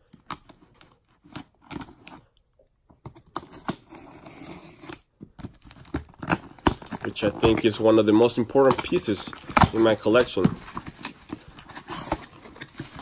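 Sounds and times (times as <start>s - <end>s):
tool scratching cardboard box tape: 3.4s - 5.1s, 8.7s - 13.0s.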